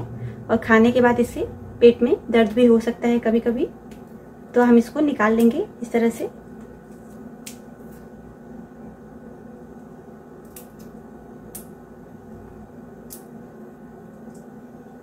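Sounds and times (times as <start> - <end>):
steady low hum: 0.0 - 15.0
knife peeling seed skins: 6.7 - 8.1, 10.4 - 11.9, 13.0 - 13.5.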